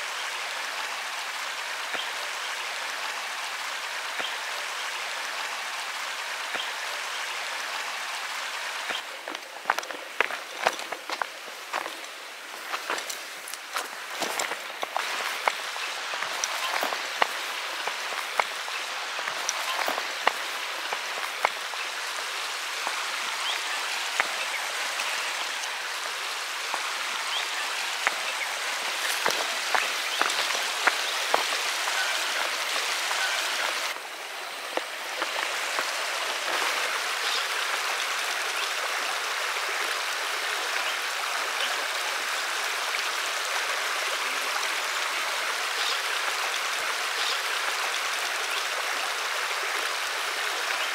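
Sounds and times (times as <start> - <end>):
river running over rocks: 0.0 - 50.9
footsteps crunching on dirt: 8.9 - 21.6, 28.9 - 33.8, 34.7 - 36.8.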